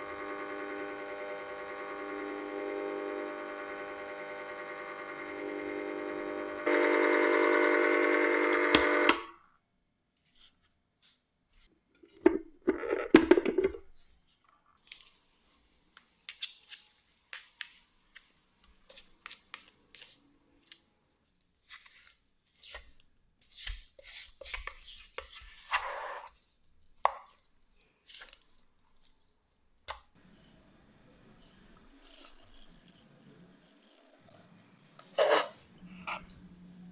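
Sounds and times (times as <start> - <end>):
electric motor humming: 0.0 - 9.3
spatula scraping ice cream: 21.8 - 26.4, 31.4 - 36.3.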